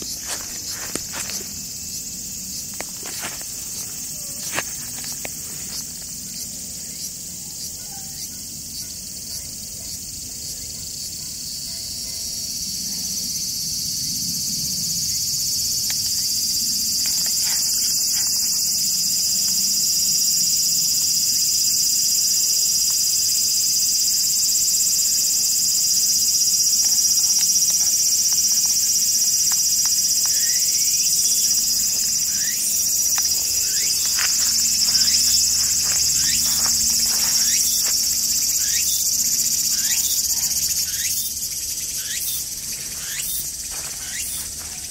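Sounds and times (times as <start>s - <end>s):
insects chorus: 0.0s - 44.9s.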